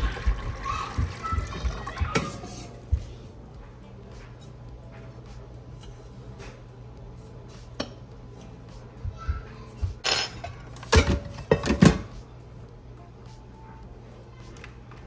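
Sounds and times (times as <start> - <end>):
metal carafe clanking: 10.0 - 12.1.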